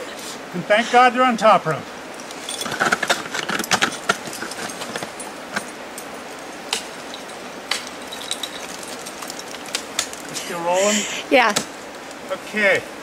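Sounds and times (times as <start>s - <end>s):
harness hardware clinking: 2.1s - 10.8s.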